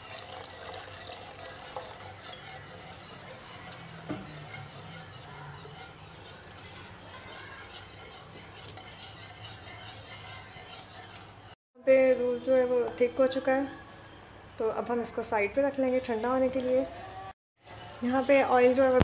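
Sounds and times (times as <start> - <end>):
whisk wires clinking against pan: 0.0 - 11.6
wire whisk stirring milk in pan: 0.0 - 11.6, 17.7 - 19.0.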